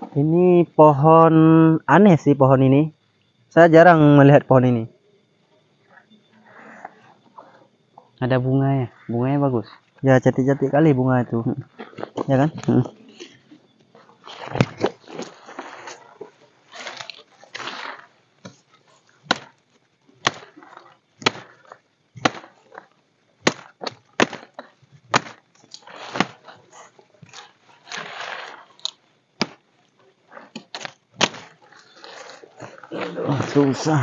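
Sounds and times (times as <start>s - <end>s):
leaves and branches rustling: 8.2s - 34.0s
machete chopping woody stems: 19.2s - 19.6s, 20.2s - 20.6s, 21.2s - 21.6s, 22.2s - 22.6s, 23.4s - 26.5s, 29.4s - 29.6s, 30.5s - 31.6s.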